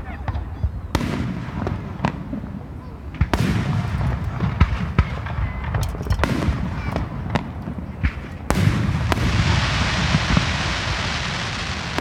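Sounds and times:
fireworks bangs: 0:00.0 - 0:12.0
steady hiss: 0:08.1 - 0:12.0.

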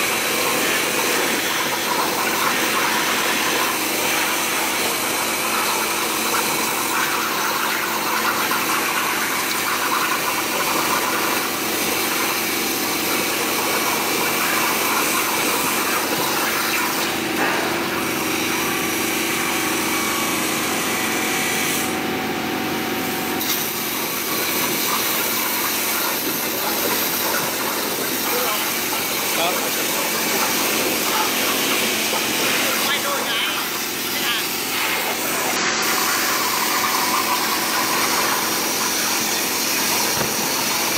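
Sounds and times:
plasma torch hissing: 0:15.6 - 0:18.1, 0:23.4 - 0:40.9.

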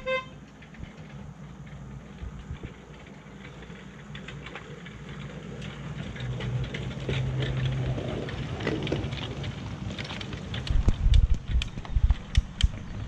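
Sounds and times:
miniature locomotive motor hum: 0:00.0 - 0:13.0
wheels clicking over rails: 0:00.0 - 0:13.0.

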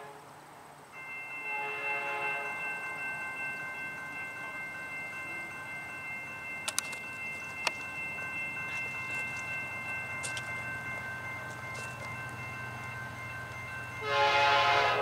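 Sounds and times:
train rumble: 0:00.0 - 0:15.0
sharp clicks: 0:06.6 - 0:07.0.

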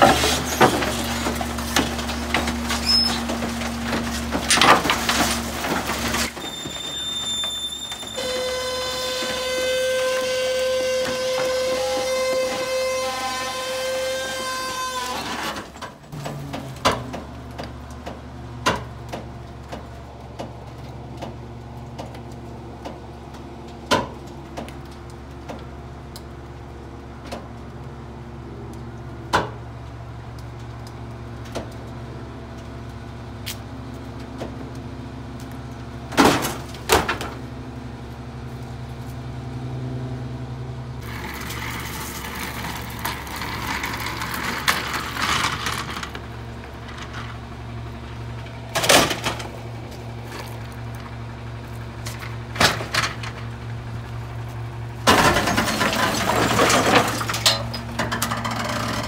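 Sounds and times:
garbage truck engine idling: 0:00.0 - 0:13.9, 0:40.8 - 0:59.0
rough rattling noise: 0:41.0 - 0:50.4.

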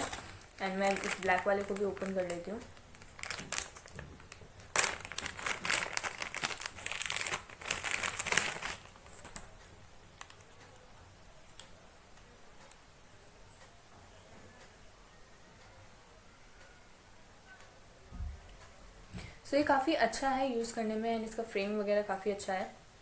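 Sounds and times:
plastic bag crinkling: 0:00.0 - 0:09.5.

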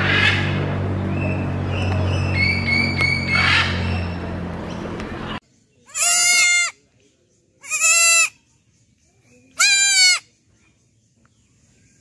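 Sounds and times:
goat kid bleating: 0:05.9 - 0:06.8, 0:07.6 - 0:08.4, 0:09.5 - 0:10.3.

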